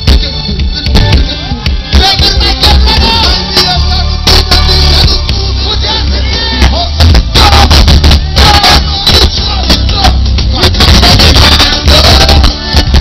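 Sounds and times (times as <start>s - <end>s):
loud live soca music with bass: 0.0s - 13.0s
man singing into microphone: 0.0s - 13.0s.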